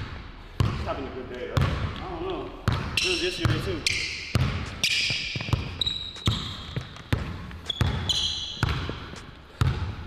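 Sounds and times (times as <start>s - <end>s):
basketball bouncing on wooden court: 0.0s - 10.0s
sneaker squeaks: 2.7s - 10.0s.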